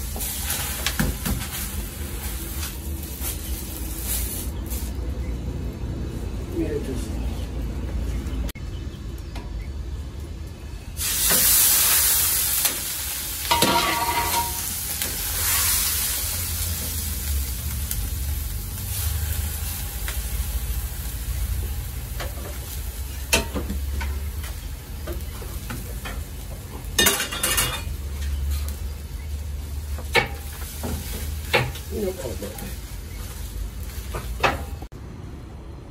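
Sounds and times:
minced meat sizzling: 0.0s - 5.1s, 10.9s - 34.9s
utensils scraping metal pans: 13.5s - 14.6s, 27.0s - 28.7s.

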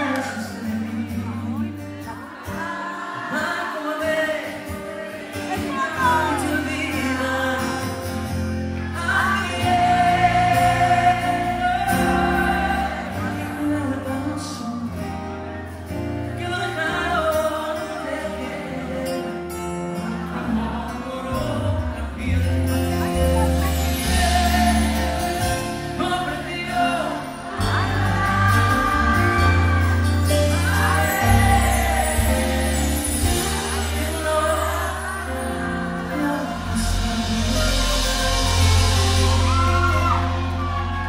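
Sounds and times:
acoustic guitar: 0.0s - 41.0s
man singing into a microphone: 0.0s - 41.0s
bass line: 20.1s - 41.0s.

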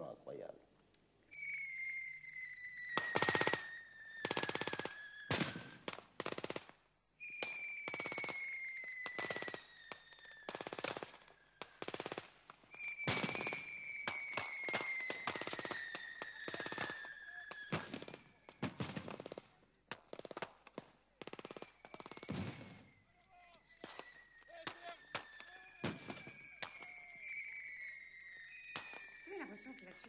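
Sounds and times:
high whistling tone sliding down: 1.3s - 5.3s, 7.2s - 10.5s, 12.7s - 18.5s, 22.7s - 30.0s.

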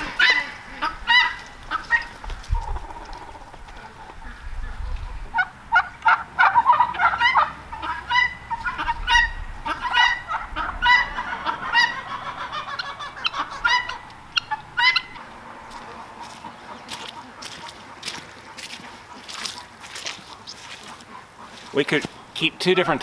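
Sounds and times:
poultry calling: 0.0s - 23.0s
harsh honking calls: 5.4s - 17.5s, 21.1s - 23.0s.

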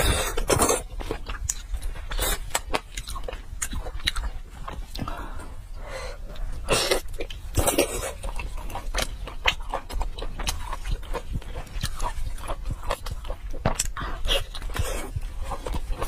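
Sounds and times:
wet mouth smacks and chewing: 0.3s - 5.1s.

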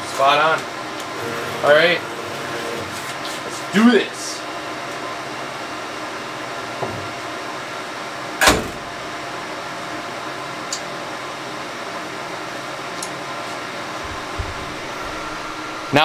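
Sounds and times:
machine lid thudding shut: 8.4s - 9.1s.

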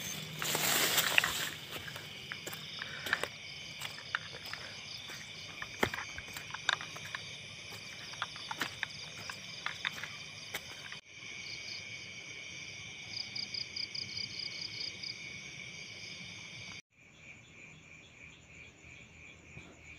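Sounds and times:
fast pulsed insect trill: 0.0s - 11.8s
crickets chirring: 0.0s - 19.9s.

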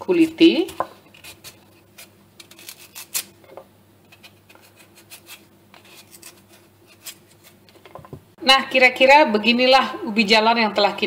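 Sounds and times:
knife scraping vegetable peel: 0.0s - 3.4s, 4.1s - 7.7s.

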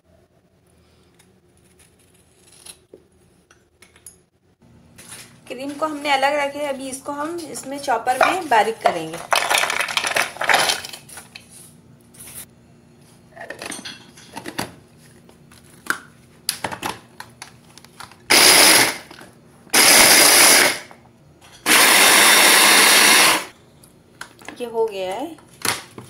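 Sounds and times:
electric chopper grinding: 18.3s - 19.1s, 19.7s - 20.9s, 21.6s - 23.5s.

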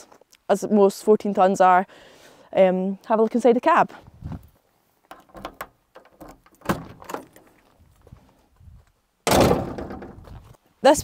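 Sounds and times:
cab door latch clicks and knocks: 5.2s - 7.4s.

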